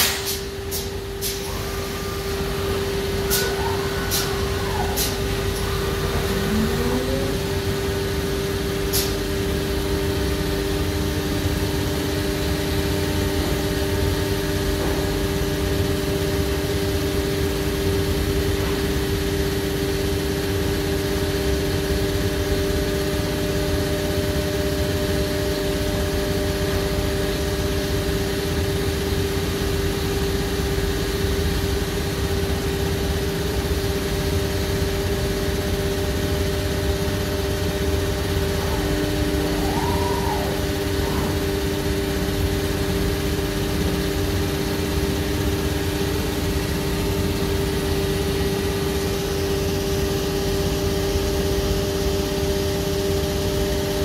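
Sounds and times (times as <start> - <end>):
machine drone: 0.0 - 54.0
rising whine: 1.6 - 8.5, 37.2 - 42.5.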